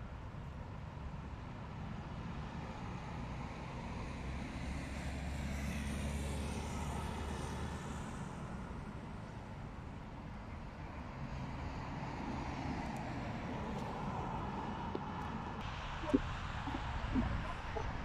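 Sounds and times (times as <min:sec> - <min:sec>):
passing motor vehicle rumble: 0:00.7 - 0:18.0
outdoor background hum: 0:06.5 - 0:18.0.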